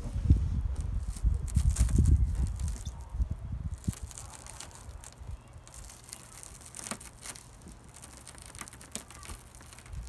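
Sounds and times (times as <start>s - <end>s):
broken glass crackling and crunching: 1.0s - 3.0s, 3.7s - 10.0s
small glass pieces breaking off: 3.8s - 10.0s.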